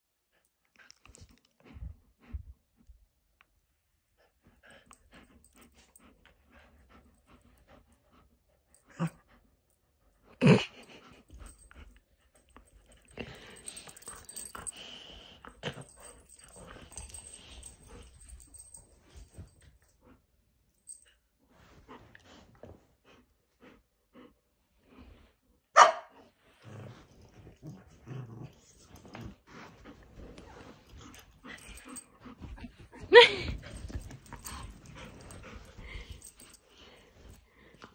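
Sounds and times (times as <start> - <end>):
dogs growling: 13.0 - 18.8, 26.5 - 32.0
dog barking: 25.8 - 26.2.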